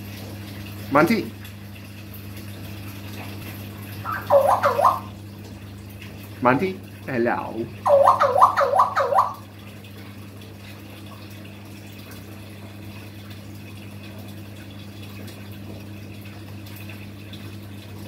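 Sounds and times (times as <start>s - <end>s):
steady low hum with hiss: 0.0s - 18.0s
quick high calls: 4.0s - 5.1s, 7.9s - 9.4s.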